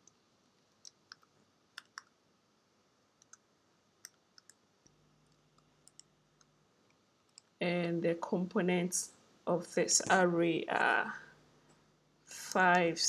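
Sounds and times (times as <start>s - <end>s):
faint computer keyboard keystrokes: 0.8s - 2.1s, 4.0s - 4.6s, 5.3s - 6.5s.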